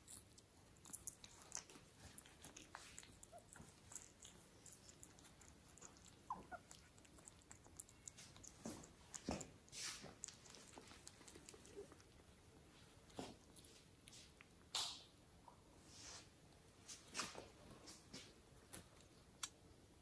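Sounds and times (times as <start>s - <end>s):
kittens pawing felt basket: 1.3s - 14.4s.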